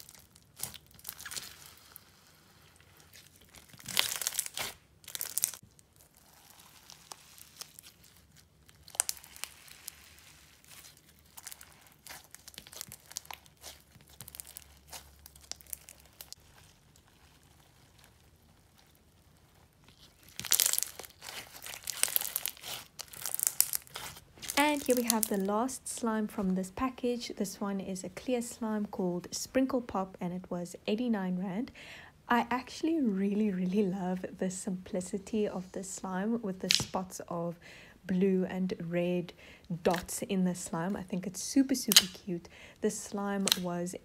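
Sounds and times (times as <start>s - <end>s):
slime crunching and crackling: 0.0s - 27.0s, 36.5s - 37.1s, 39.7s - 40.7s, 41.5s - 44.0s.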